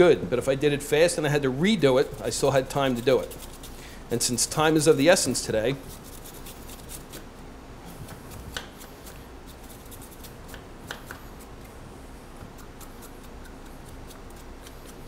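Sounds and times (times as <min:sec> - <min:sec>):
vegetable peeler scraping: 0:01.8 - 0:07.3, 0:07.9 - 0:11.5, 0:12.4 - 0:15.0.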